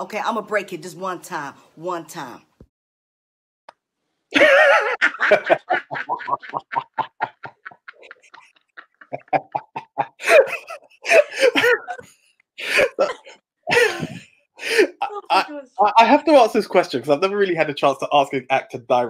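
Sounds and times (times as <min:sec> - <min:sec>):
man and woman laughing: 0:04.3 - 0:16.2.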